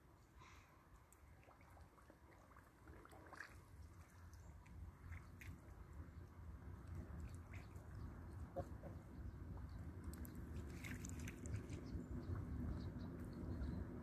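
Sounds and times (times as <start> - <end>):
goose dabbling in water: 1.0 - 5.9, 10.1 - 11.9.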